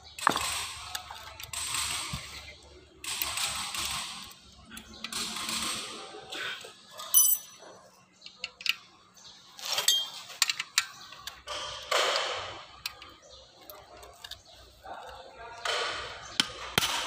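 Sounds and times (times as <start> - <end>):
metal tools clicking and knocking: 6.9 - 17.0
ringing metallic clink: 7.1 - 7.6, 9.8 - 10.2.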